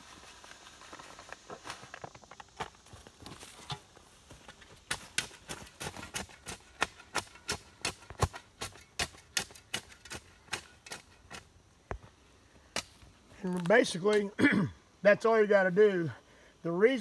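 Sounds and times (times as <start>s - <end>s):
shovel chopping into dirt: 4.9s - 11.5s, 12.7s - 13.0s.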